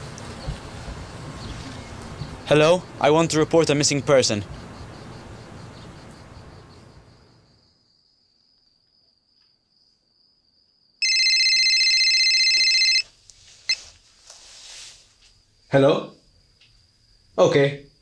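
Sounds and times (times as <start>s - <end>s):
mobile phone ringing: 11.0s - 13.1s
thin high steady whine: 11.0s - 14.0s.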